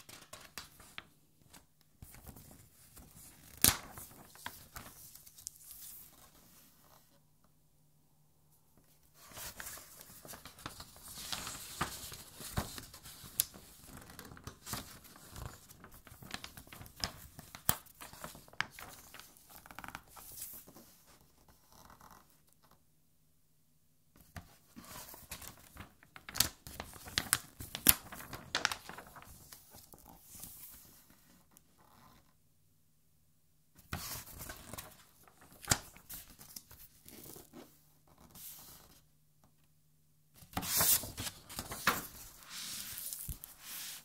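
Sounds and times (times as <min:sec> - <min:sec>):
book pages turning: 0:24.8 - 0:31.3, 0:40.5 - 0:44.0.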